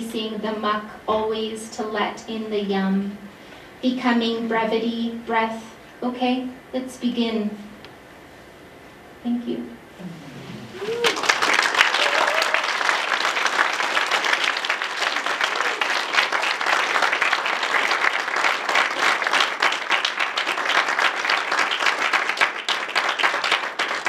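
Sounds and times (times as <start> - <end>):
audience applauding: 10.5 - 24.0.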